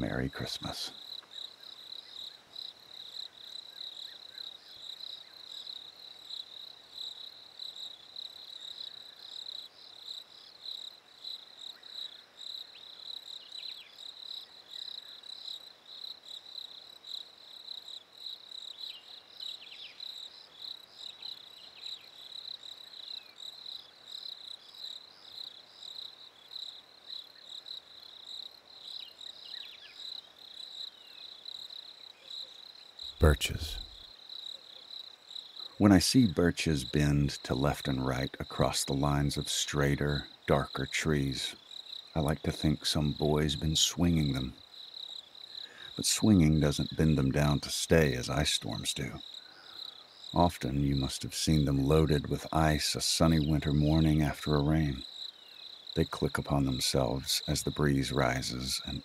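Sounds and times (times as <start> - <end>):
crickets chirping: 0.0 - 59.0.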